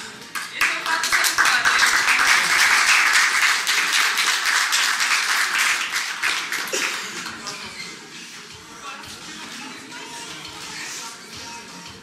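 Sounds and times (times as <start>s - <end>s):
crowd applauding: 0.3s - 7.6s.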